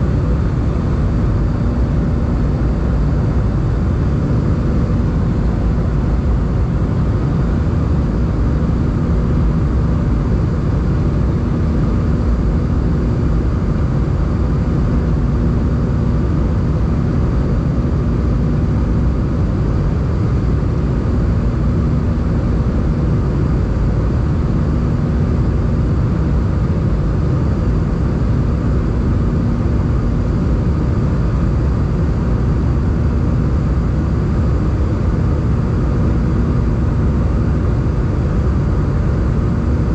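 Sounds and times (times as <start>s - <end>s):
faint steady hum: 0.0s - 39.9s
jet engines droning: 0.0s - 39.9s.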